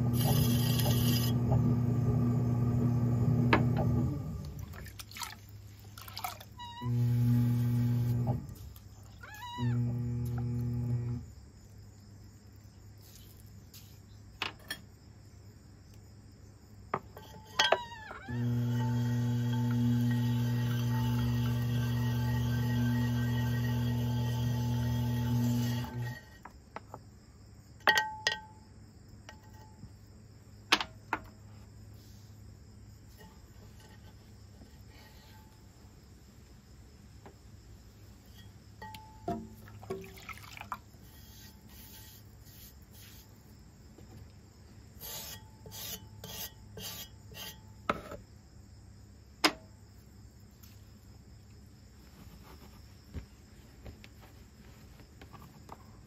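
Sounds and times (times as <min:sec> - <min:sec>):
electric hum: 0:00.0 - 0:04.7, 0:06.8 - 0:08.6, 0:09.6 - 0:11.3, 0:18.3 - 0:26.2
crickets chirping: 0:00.0 - 0:56.0
clicks and taps with metallic ring: 0:27.8 - 0:28.6, 0:38.3 - 0:39.5.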